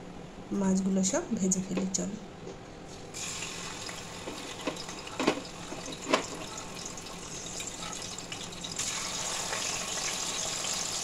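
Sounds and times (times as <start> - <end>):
fish sizzling in hot oil: 3.2 - 11.0.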